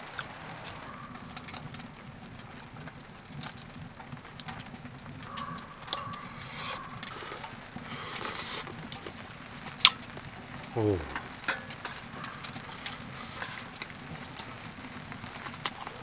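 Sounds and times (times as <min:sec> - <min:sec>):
chewing: 0:00.0 - 0:09.2, 0:10.6 - 0:16.0
shrimp shell crackling: 0:00.0 - 0:16.0
chopsticks ticking on metal pot: 0:05.2 - 0:08.6, 0:11.1 - 0:14.5.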